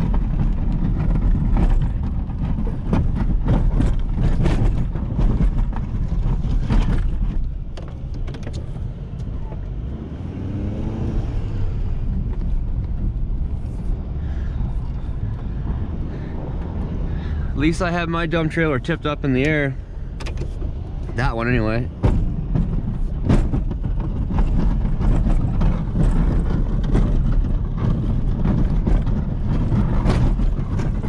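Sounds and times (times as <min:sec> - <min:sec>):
short knocks and rattles: 0:00.0 - 0:08.8, 0:17.1 - 0:31.0
diesel engine rumbling: 0:00.0 - 0:31.0.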